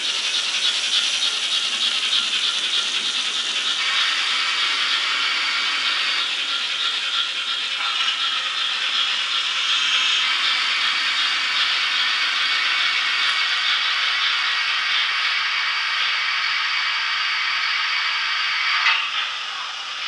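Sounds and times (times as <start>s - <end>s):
model locomotive steam hiss: 0.0s - 20.0s.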